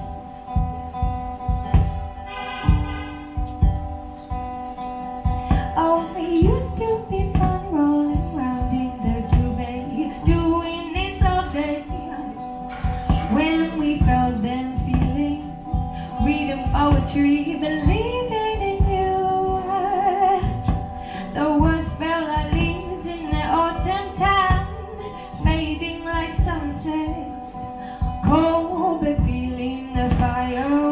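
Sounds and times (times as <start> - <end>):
strummed acoustic guitar: 0.0 - 30.9
woman singing: 5.3 - 30.9.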